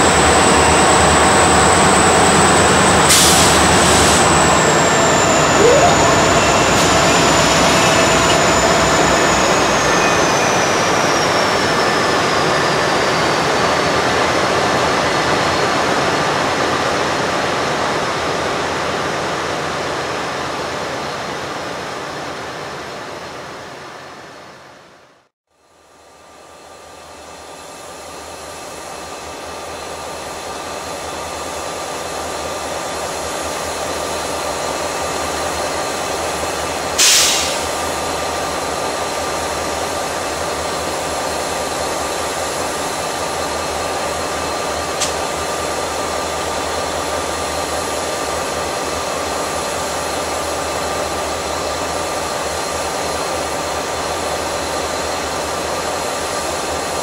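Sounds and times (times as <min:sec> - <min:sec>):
locomotive engines droning: 0:00.0 - 0:24.8
air hiss blast: 0:03.1 - 0:04.3, 0:37.0 - 0:37.8.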